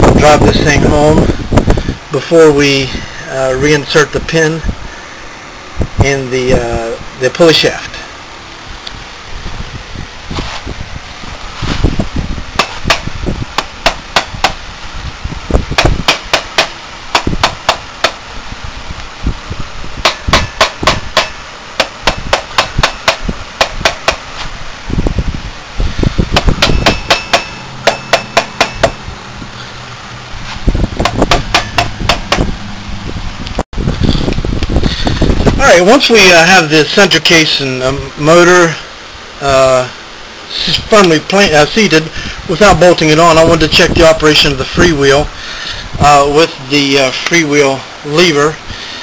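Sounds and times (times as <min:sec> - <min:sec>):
rubber mallet tapping wooden board: 0:15.8 - 0:18.2, 0:20.0 - 0:24.2, 0:26.4 - 0:29.0, 0:31.0 - 0:32.5.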